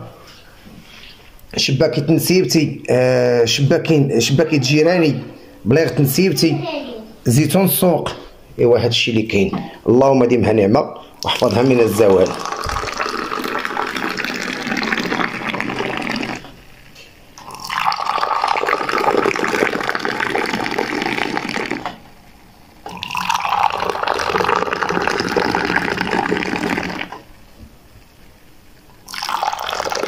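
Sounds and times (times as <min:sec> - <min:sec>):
tea pouring into glasses: 0:11.2 - 0:16.6, 0:17.4 - 0:22.0, 0:22.9 - 0:27.2, 0:29.0 - 0:30.0.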